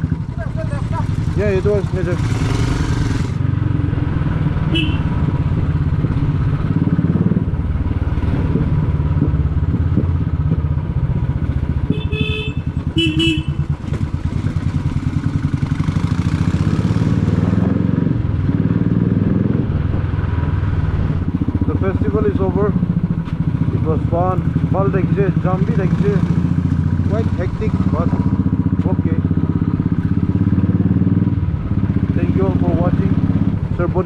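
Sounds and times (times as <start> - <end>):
motorcycle engine thumping: 4.6 - 15.7, 21.0 - 32.1
short horn beeps: 4.7 - 5.1, 11.9 - 13.6.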